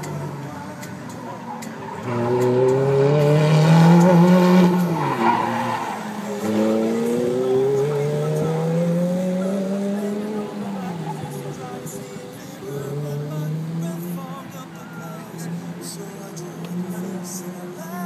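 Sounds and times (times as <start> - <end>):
sports car engine accelerating: 0.0 - 18.0
tyre squeal: 4.7 - 6.6.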